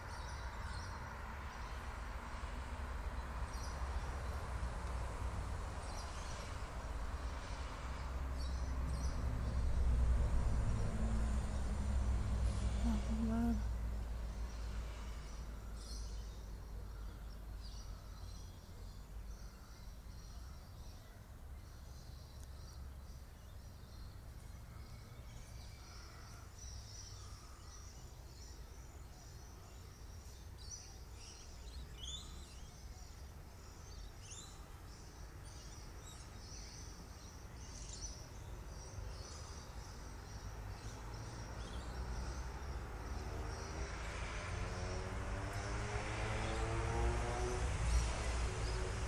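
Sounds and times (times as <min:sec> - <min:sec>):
low outdoor rumble: 0:00.0 - 0:16.0
small birds chirping: 0:00.0 - 0:49.0.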